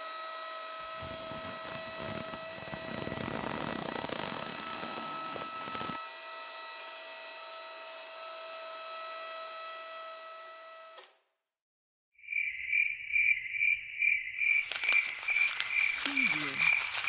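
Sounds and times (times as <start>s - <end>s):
small motor whining: 0.0s - 11.0s
motor grinding: 0.6s - 6.1s.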